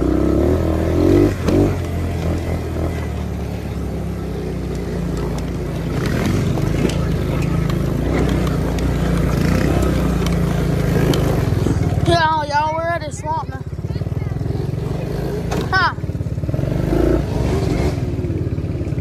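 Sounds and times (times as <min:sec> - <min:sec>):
atv engine running: 0:00.0 - 0:19.0.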